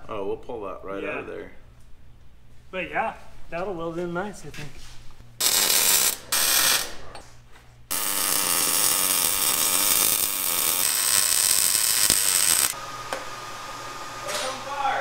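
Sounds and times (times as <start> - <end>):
welding arc crackling: 5.4 - 7.0, 7.9 - 12.8.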